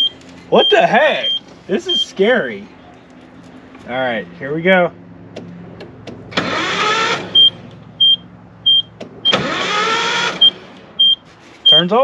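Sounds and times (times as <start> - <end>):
dashboard warning chime beeping: 0.0 - 2.2, 7.4 - 9.4, 10.4 - 12.0
starter motor cranking engine: 6.2 - 7.4, 9.3 - 10.6.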